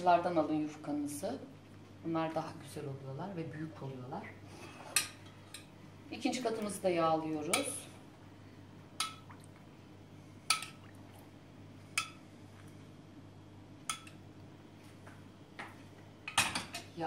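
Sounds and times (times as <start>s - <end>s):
steady low hum: 0.0s - 17.0s
metal spoon clinking on pan: 13.9s - 14.2s.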